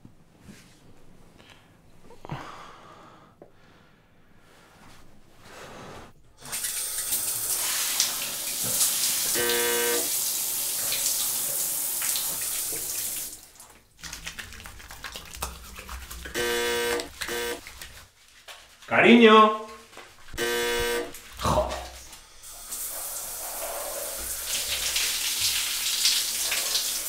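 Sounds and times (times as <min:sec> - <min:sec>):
shower spray running: 0:06.4 - 0:18.8, 0:20.2 - 0:27.0
short steady pitched tone: 0:09.4 - 0:10.1, 0:16.4 - 0:17.6.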